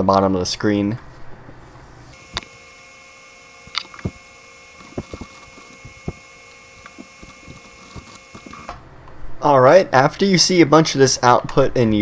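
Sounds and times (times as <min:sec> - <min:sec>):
faint electrical hum: 0:00.0 - 0:12.0.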